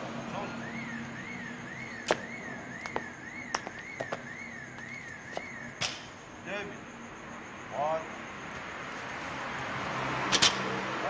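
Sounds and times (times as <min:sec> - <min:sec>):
warbling electronic siren tone: 0:00.3 - 0:05.8.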